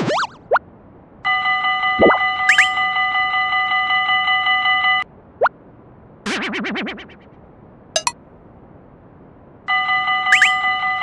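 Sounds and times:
railroad crossing bell ringing: 0:09.7 - 0:11.0.

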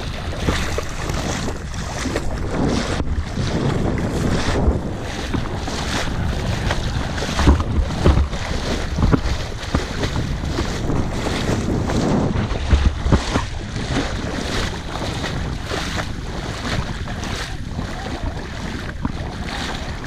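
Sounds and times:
water sloshing and splashing: 0:00.0 - 0:20.0
wind buffeting microphone: 0:00.0 - 0:20.0
loud thuds: 0:06.7 - 0:13.7.

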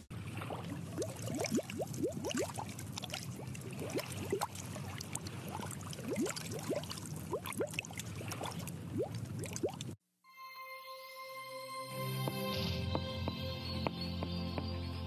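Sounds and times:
bubbles gurgling in water: 0:00.2 - 0:10.0.

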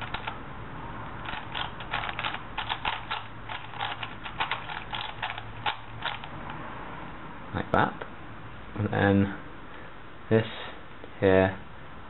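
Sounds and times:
puzzle cube clicking: 0:00.0 - 0:00.4, 0:01.2 - 0:06.3.

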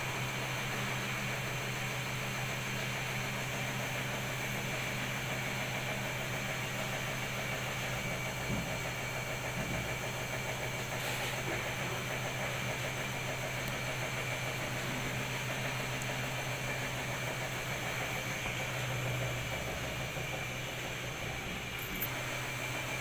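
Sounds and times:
washing machine motor hum: 0:00.0 - 0:23.0.

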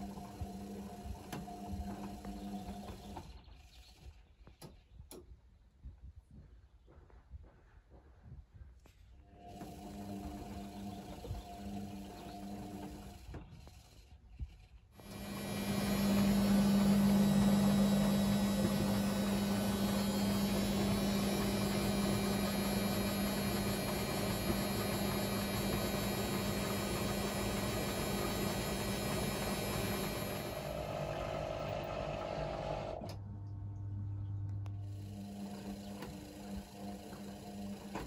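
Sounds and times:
washing machine spinning hum: 0:00.0 - 0:03.7, 0:09.3 - 0:13.8, 0:15.0 - 0:38.0.

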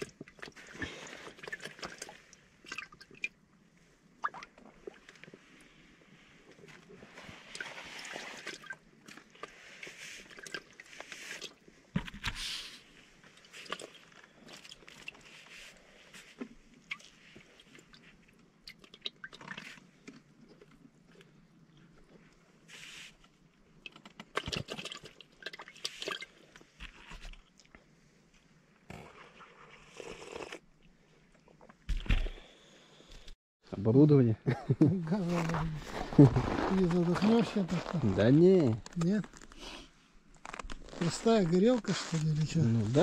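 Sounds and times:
rustling and handling gear: 0:35.1 - 0:43.0.

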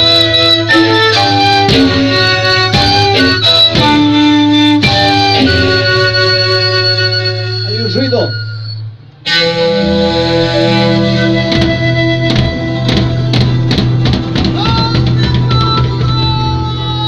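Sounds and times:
long held melody notes: 0:00.0 - 0:15.8
guitar: 0:00.0 - 0:17.0
drum hits: 0:01.0 - 0:05.8, 0:11.3 - 0:16.6.

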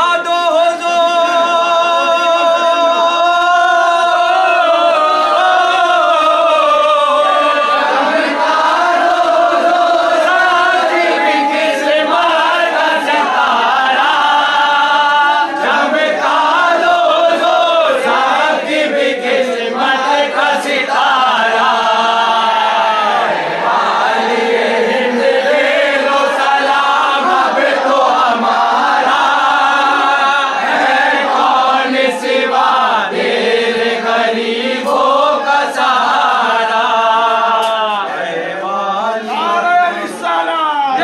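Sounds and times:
men singing in unison: 0:00.0 - 0:40.3.

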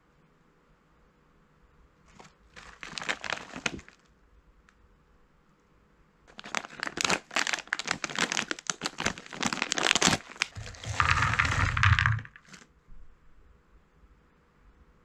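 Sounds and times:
snack bag crinkling and tearing: 0:02.1 - 0:04.1, 0:06.3 - 0:12.6
snack pieces clattering onto plate: 0:10.4 - 0:12.6.

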